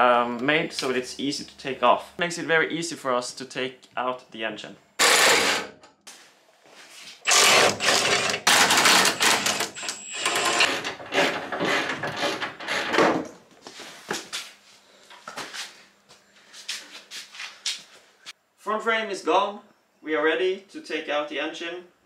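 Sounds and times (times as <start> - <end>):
impact wrench rattling: 5.0 - 5.7, 7.3 - 11.0.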